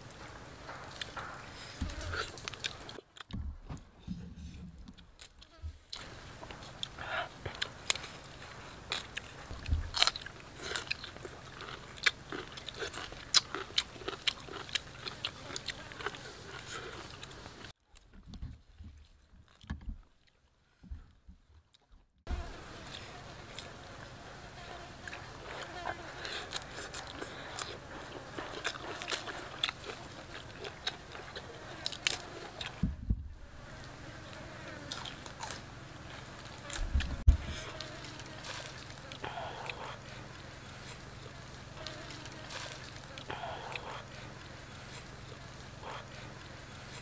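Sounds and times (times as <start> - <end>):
low thump: 3.3 - 5.0
small crunches: 5.2 - 18.1
chewing and mouth smacking: 8.9 - 17.7, 25.0 - 32.8, 41.8 - 47.0.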